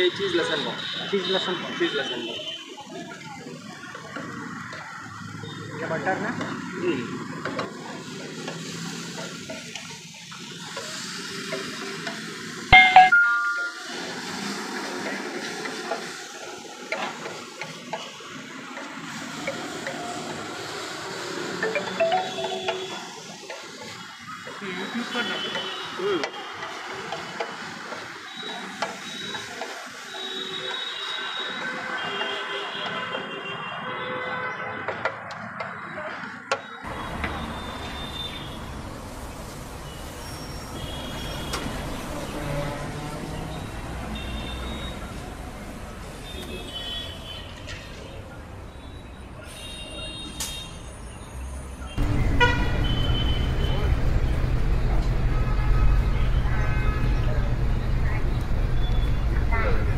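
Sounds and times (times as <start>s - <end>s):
street traffic rumble: 0.0s - 59.9s
faint short high tones: 12.7s - 14.0s, 21.6s - 23.2s
bell-like chime: 12.8s - 14.2s, 21.6s - 23.3s.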